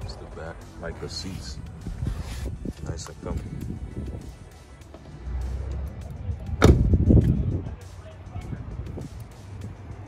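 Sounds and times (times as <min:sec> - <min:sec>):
car door shutting: 0:06.6 - 0:07.0.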